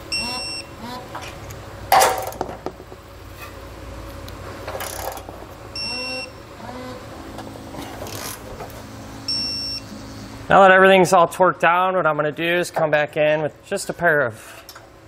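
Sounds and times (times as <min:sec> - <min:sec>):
high electronic beep: 0:00.1 - 0:00.7, 0:05.8 - 0:06.4, 0:09.2 - 0:10.3
ratcheting and tool handling: 0:04.7 - 0:05.3, 0:07.8 - 0:08.4.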